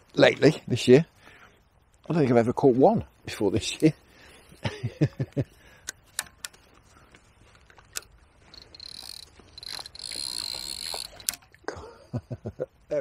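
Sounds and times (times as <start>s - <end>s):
sharp clicks: 5.8s - 6.9s, 7.7s - 11.6s
fishing reel whirring: 8.0s - 11.4s.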